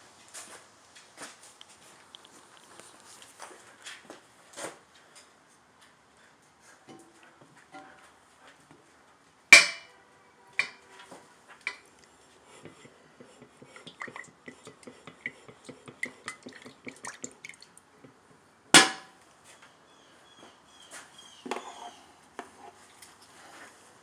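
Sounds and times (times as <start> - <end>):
metal pot lid clanking: 9.6 - 9.9.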